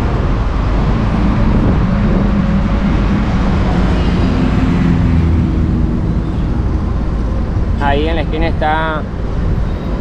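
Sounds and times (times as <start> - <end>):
car engine and road noise: 0.0 - 10.0.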